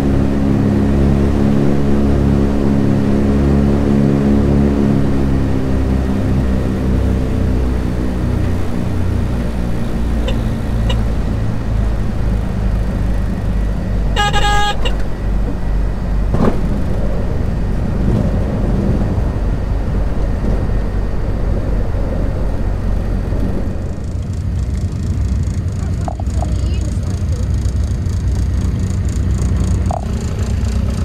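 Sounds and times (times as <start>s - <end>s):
aircraft engines droning: 0.0s - 31.0s
short horn-like tone: 10.2s - 11.1s, 14.1s - 15.0s.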